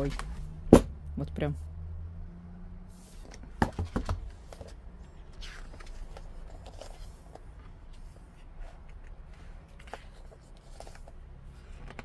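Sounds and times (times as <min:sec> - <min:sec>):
taps and knocks on hardcover book: 0:00.7 - 0:00.9, 0:03.6 - 0:04.6
paper rustle: 0:05.4 - 0:12.0.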